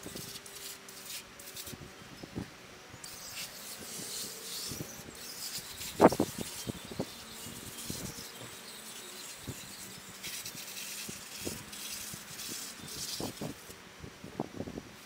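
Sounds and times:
aerosol can hissing: 3.1 - 13.7.

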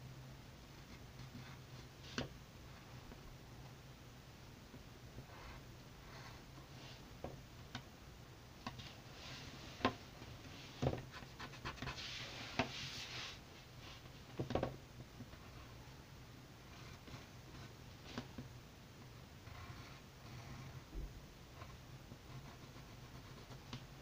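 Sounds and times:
pencil scratching on paper: 11.0 - 13.3, 19.4 - 20.9, 21.6 - 23.8.

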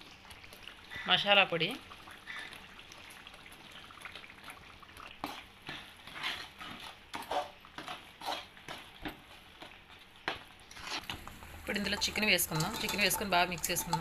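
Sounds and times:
spatula scraping paste in pan: 5.2 - 8.8, 10.7 - 11.2.

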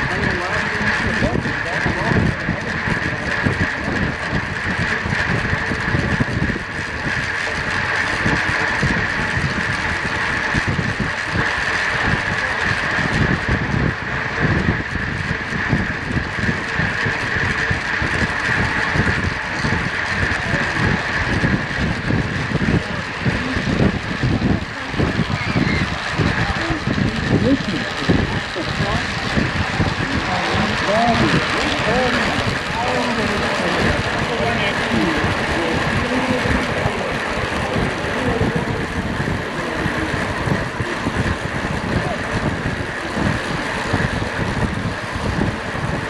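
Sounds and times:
high-pitched hum: 0.0 - 46.0
wind buffeting microphone: 0.0 - 46.0.

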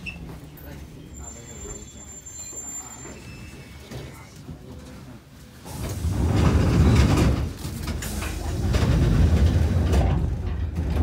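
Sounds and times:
electric train rumbling: 5.6 - 11.0.

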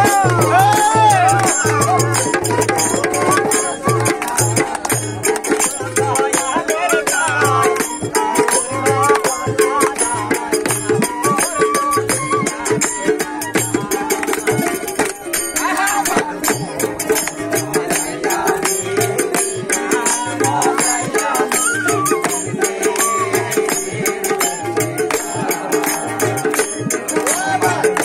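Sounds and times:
bamboo flute melody: 0.0 - 4.6, 7.9 - 14.8, 21.6 - 23.4
hand drums beating: 0.0 - 28.0.

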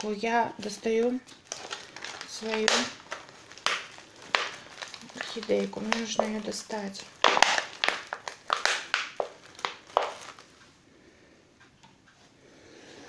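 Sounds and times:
plastic flowerpot crinkling: 0.0 - 10.6
bark chips rustling: 0.6 - 10.5.

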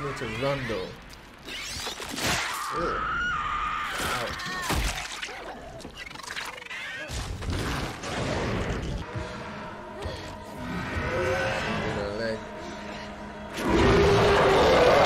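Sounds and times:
dramatic music: 8.0 - 15.0.

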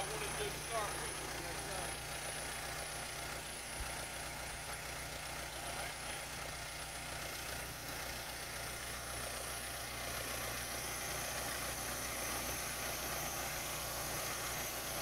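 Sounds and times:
backhoe engine idling: 0.0 - 11.8.

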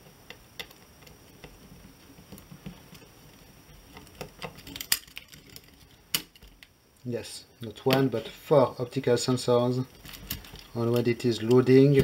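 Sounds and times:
small parts clicking and tapping: 0.0 - 3.1, 3.8 - 6.8, 9.9 - 12.0.

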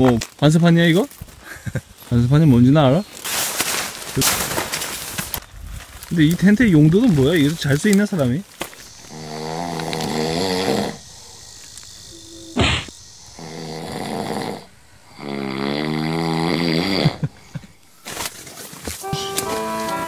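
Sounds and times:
man snoring: 8.8 - 17.5
short sharp sound: 19.0 - 20.0.

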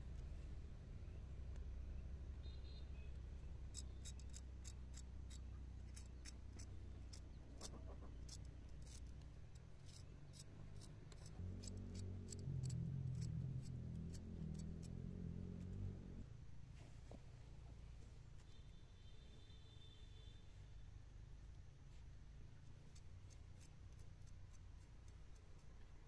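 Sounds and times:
knife cutting and scraping chili: 3.7 - 9.2.

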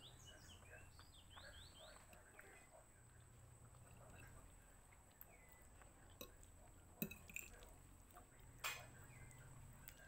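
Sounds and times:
fork clinking on ceramic plate: 7.0 - 7.6.

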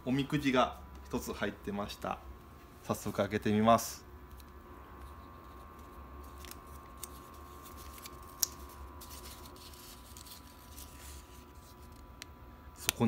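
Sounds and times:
paper rustling and crackling: 5.0 - 12.1.

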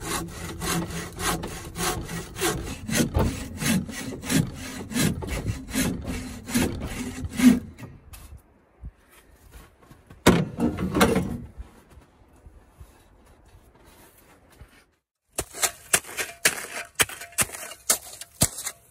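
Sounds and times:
bow saw cutting log: 0.0 - 7.9.

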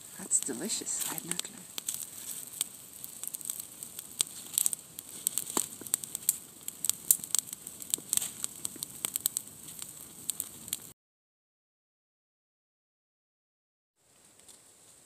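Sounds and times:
campfire crackling and popping: 0.0 - 11.0, 14.0 - 15.0.

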